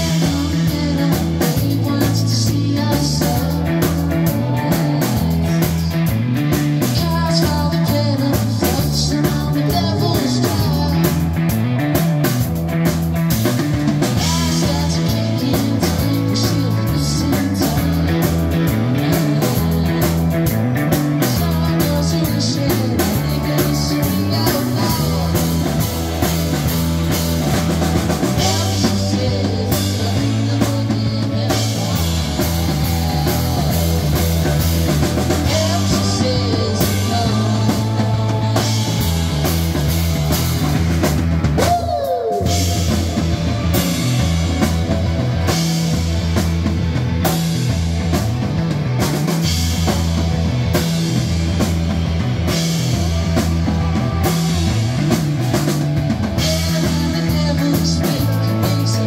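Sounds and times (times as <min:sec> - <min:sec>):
person singing lead vocal: 0:00.0 - 0:12.3, 0:14.0 - 0:40.8, 0:41.6 - 0:44.8, 0:56.3 - 0:59.0
drum kit: 0:00.0 - 0:59.0
electric guitars: 0:00.0 - 0:59.0.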